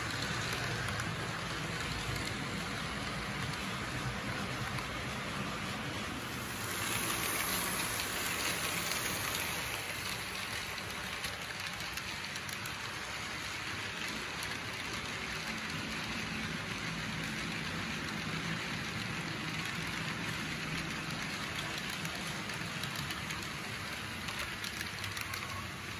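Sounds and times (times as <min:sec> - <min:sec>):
model train wheels rattling: 0:00.0 - 0:25.9.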